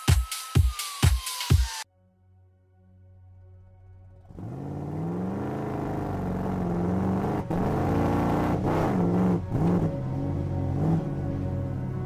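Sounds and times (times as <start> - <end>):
background music: 0.0 - 12.0
car engine revving: 4.2 - 12.0.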